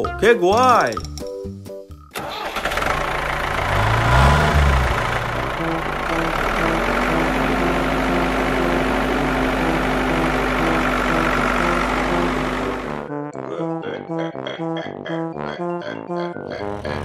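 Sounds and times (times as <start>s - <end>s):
diesel engine starting and idling: 2.1s - 13.2s.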